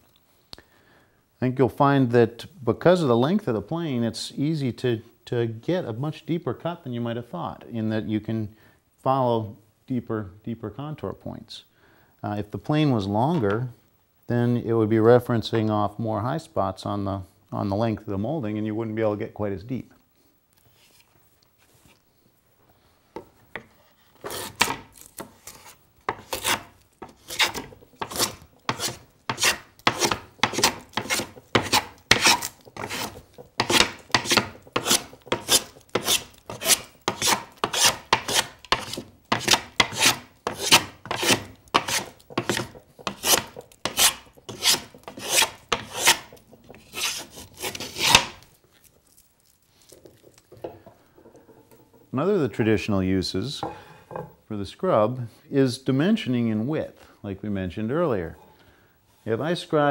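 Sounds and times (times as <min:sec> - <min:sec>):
hand plane shaving wood: 0:24.2 - 0:48.4.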